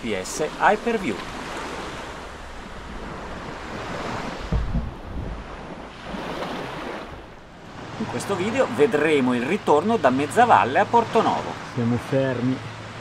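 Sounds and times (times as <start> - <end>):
sea water lapping: 0.0 - 13.0
wind noise on microphone: 2.0 - 7.7
low thump: 4.3 - 5.7.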